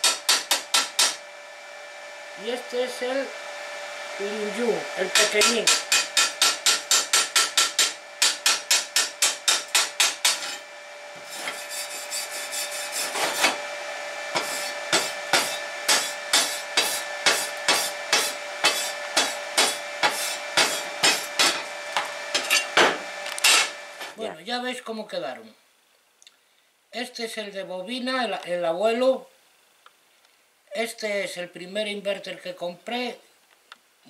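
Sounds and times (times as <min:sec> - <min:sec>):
wire brush scrubbing metal: 0:04.2 - 0:10.6, 0:11.2 - 0:13.6, 0:14.3 - 0:21.7.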